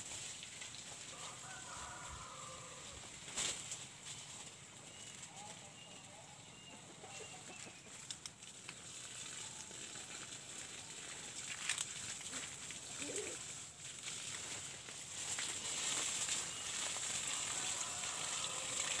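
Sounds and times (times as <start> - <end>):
chickens clucking: 4.8 - 8.2.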